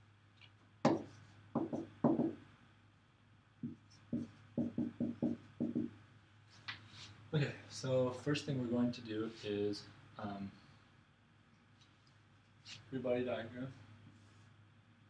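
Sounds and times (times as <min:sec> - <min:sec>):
marker writing on a whiteboard: 0:00.9 - 0:02.4, 0:03.6 - 0:06.0.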